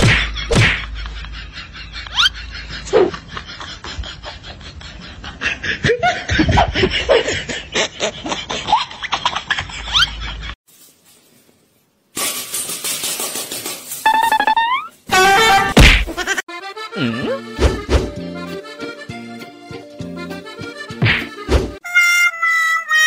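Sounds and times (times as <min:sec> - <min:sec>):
person laughing: 0:00.2 - 0:09.0, 0:16.1 - 0:17.6.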